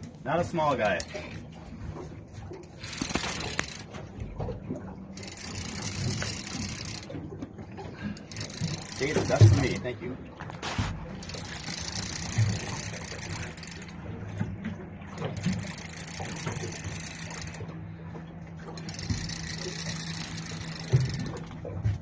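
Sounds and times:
boat motor idling: 0:00.0 - 0:22.0.

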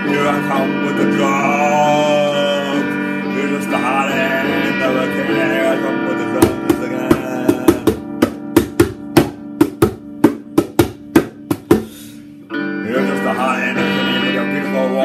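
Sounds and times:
held chord backing music: 0:00.0 - 0:15.0
quick drum hits: 0:06.4 - 0:11.9.

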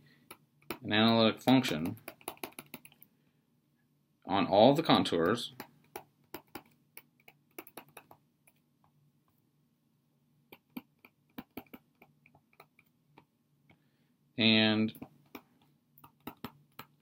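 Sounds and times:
stylus tapping on tablet: 0:00.2 - 0:03.1, 0:05.1 - 0:09.0, 0:10.5 - 0:13.3, 0:14.9 - 0:17.0.

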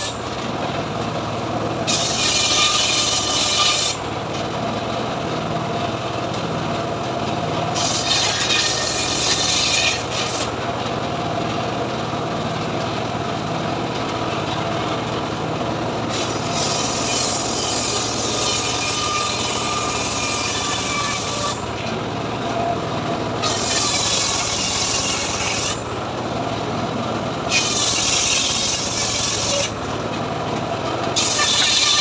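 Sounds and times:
saw blade cutting wood: 0:00.0 - 0:00.3, 0:01.8 - 0:04.0, 0:07.7 - 0:10.6, 0:16.1 - 0:21.9, 0:23.4 - 0:25.9, 0:27.5 - 0:29.8, 0:31.1 - 0:32.0.

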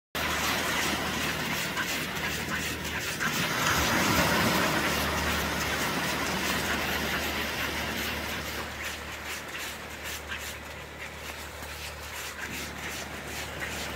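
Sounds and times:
waves washing up a beach: 0:00.2 - 0:13.9.

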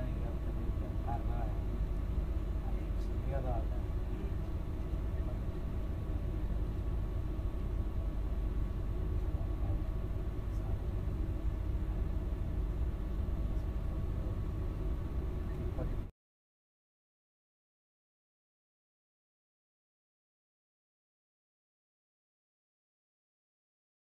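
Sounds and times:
low outdoor rumble: 0:00.0 - 0:16.1.

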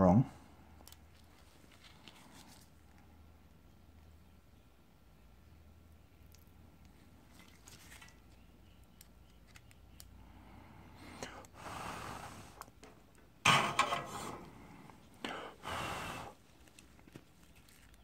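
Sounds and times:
person blowing out hard: 0:15.3 - 0:16.4.

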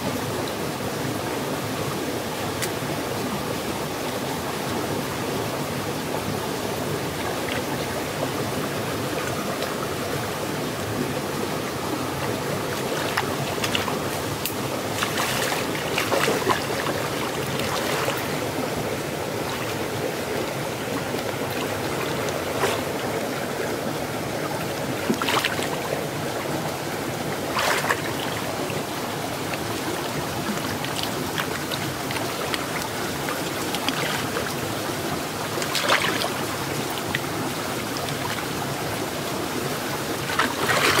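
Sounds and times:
stream flowing: 0:00.0 - 0:41.0
splashing water: 0:11.4 - 0:23.6, 0:24.8 - 0:41.0.

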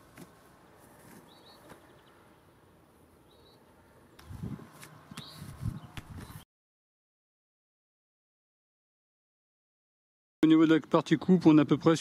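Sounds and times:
small bird chirping: 0:01.2 - 0:02.2, 0:03.2 - 0:06.4.

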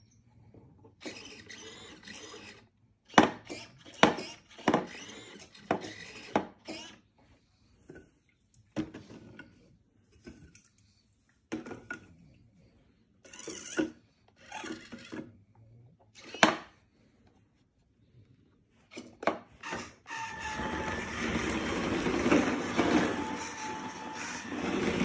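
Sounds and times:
small drive motors grinding: 0:01.0 - 0:07.0, 0:13.2 - 0:15.3, 0:19.6 - 0:25.0.

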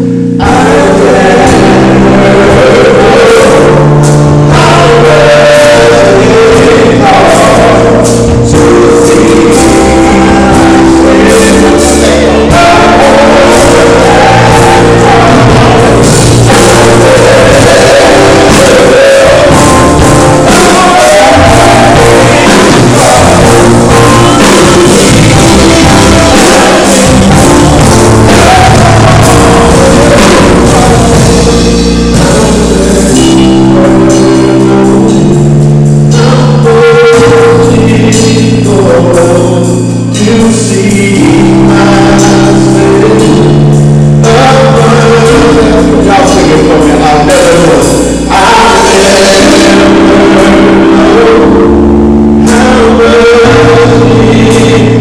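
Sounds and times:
electric keyboard: 0:00.0 - 0:55.0
men singing in harmony: 0:00.0 - 0:55.0.

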